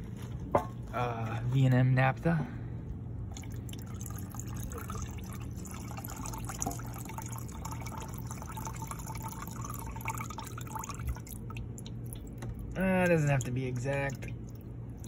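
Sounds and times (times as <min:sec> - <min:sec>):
low steady hum: 0:00.0 - 0:15.0
liquid pouring into liquid: 0:03.3 - 0:15.0.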